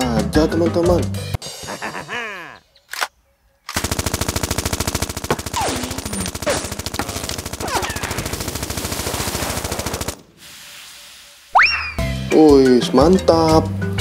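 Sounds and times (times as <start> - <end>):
rapid rattle of sharp pops: 3.7 - 10.3
short falling squeals: 11.5 - 12.1.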